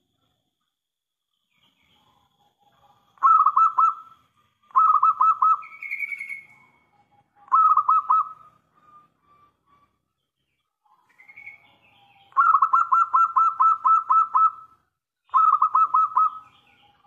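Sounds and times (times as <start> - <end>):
dove cooing: 1.9 - 10.1, 10.9 - 17.0.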